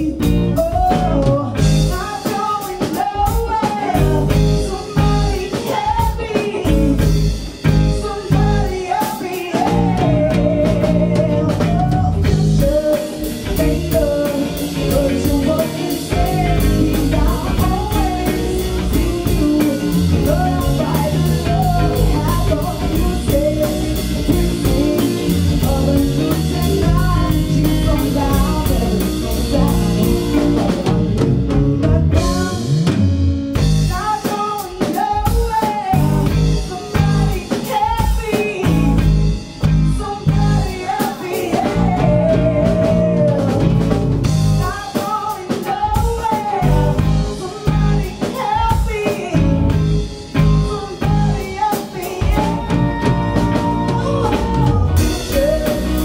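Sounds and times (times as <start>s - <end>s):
woman singing: 0.0s - 33.0s, 33.6s - 56.0s
drum kit: 0.0s - 56.0s
electric guitars: 0.0s - 56.0s.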